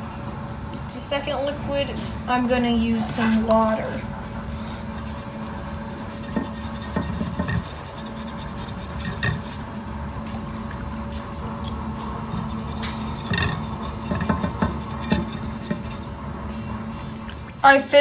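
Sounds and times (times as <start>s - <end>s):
steady low hum: 0.0s - 18.0s
cotton swab rubbing on metal: 5.0s - 9.6s, 12.3s - 16.1s.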